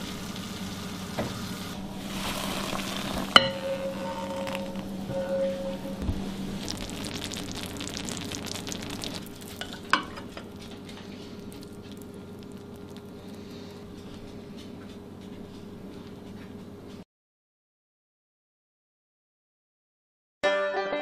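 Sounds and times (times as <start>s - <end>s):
low steady hum: 0.0s - 17.0s
spatula scraping glass bowl: 2.0s - 6.1s.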